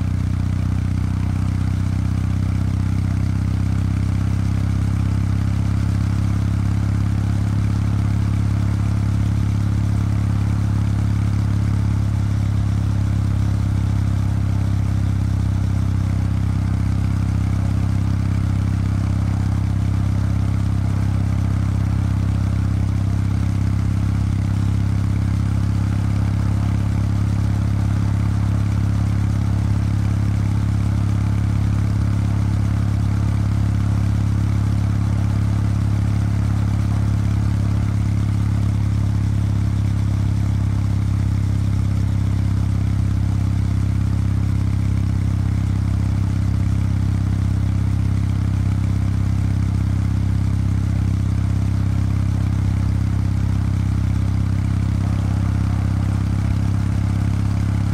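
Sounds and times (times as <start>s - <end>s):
motorcycle engine cruising: 54.5s - 57.9s.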